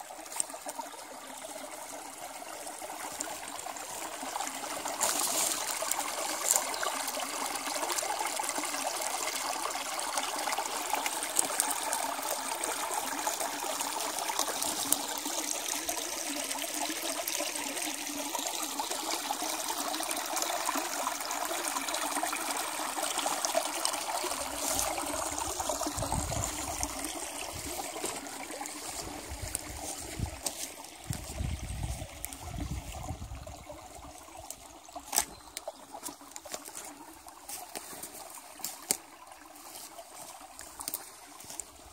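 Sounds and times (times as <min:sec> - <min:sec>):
stream trickling and babbling: 0:00.0 - 0:41.9.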